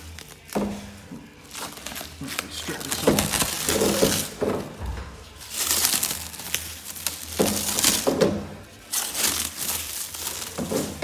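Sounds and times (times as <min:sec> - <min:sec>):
plastic wrap crinkling and tearing: 0:00.0 - 0:11.0.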